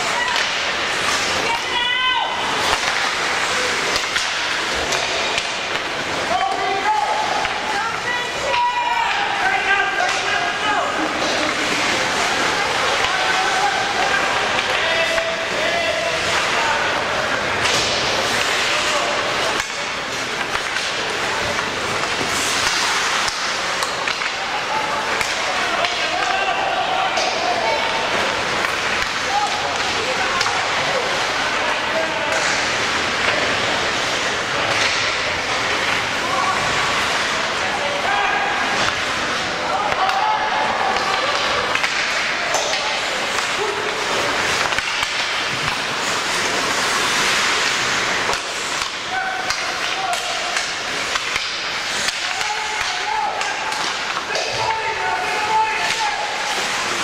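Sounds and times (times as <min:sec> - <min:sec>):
noisy din in large hall: 0:00.0 - 0:57.0
indistinct shouts: 0:01.4 - 0:02.8, 0:24.4 - 0:28.1.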